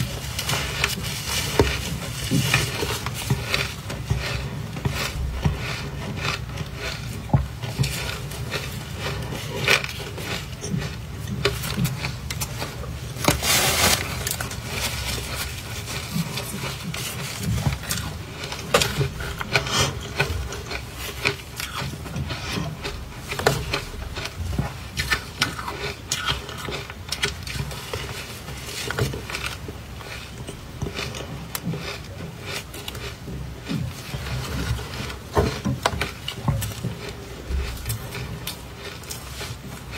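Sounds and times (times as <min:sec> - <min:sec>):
gloved hands squeezing ice: 0:00.0 - 0:24.1
ice crunching while chewing: 0:00.0 - 0:39.9.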